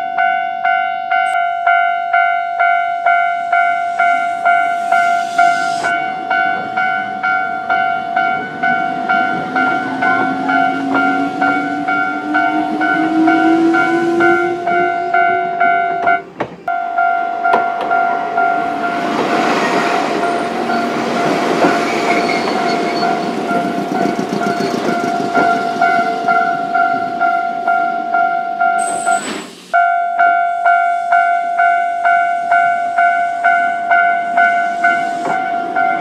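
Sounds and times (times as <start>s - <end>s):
level crossing bell ringing: 0.0s - 4.8s, 5.9s - 19.0s, 29.8s - 36.0s
train rolling on rails: 0.0s - 36.0s.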